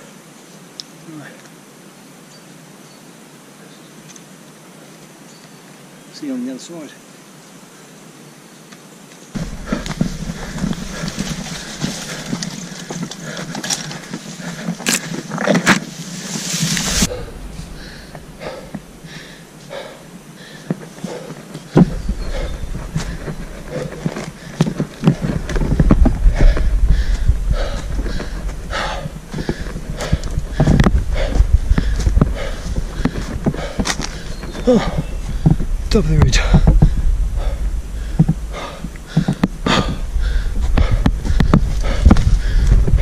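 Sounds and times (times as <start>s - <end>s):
footsteps on forest litter: 9.4s - 19.8s, 20.4s - 42.8s
heavy footsteps: 9.4s - 43.0s
low rumble: 15.9s - 19.9s, 21.7s - 43.0s.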